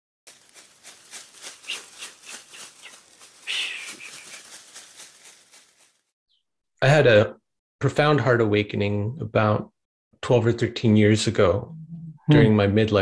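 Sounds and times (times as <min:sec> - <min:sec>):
rhythmic swishing strokes: 0:00.4 - 0:05.8.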